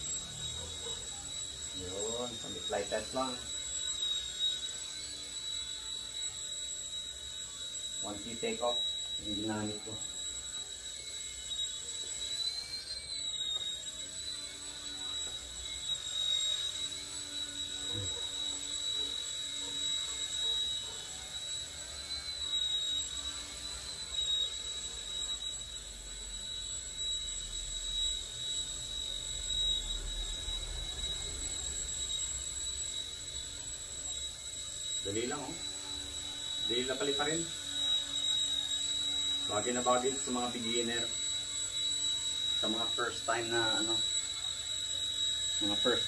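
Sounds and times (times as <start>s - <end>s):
toy helicopter motor whine: 0.0s - 46.0s.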